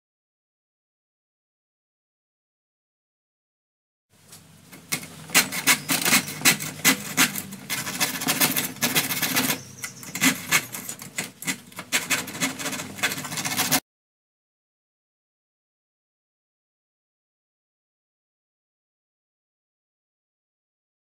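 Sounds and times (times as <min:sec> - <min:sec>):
hand saw cutting wood: 0:04.7 - 0:13.8.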